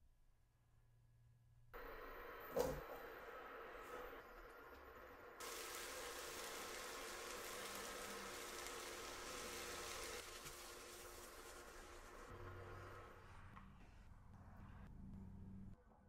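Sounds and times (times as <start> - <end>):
food sizzling in a skillet: 5.4 - 13.1.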